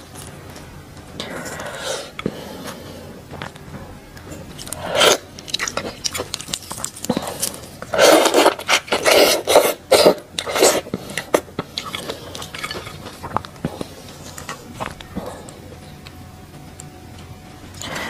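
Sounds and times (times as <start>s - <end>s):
shrimp shells crackling: 4.5s - 13.6s
wet slurping: 4.6s - 6.3s, 7.1s - 13.4s.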